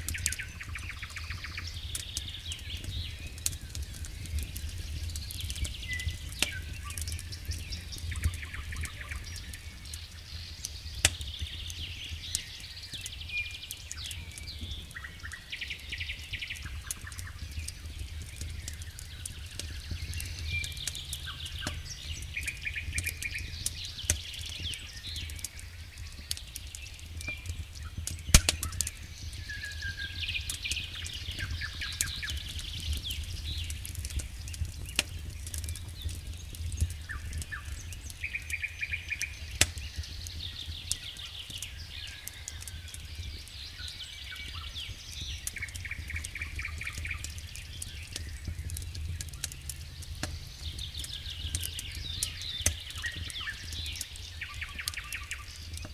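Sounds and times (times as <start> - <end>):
campfire crackling and popping: 0.0 - 55.9.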